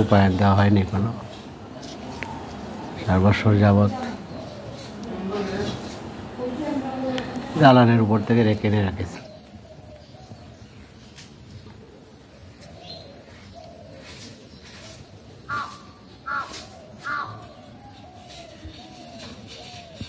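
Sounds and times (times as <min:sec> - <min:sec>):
crow cawing: 0:15.5 - 0:17.6.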